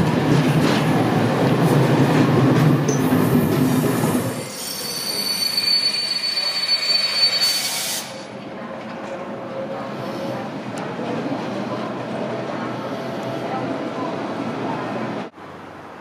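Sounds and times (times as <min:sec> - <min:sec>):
train wheels rumbling on rails: 0:00.0 - 0:05.4
train wheels squealing: 0:04.0 - 0:08.3.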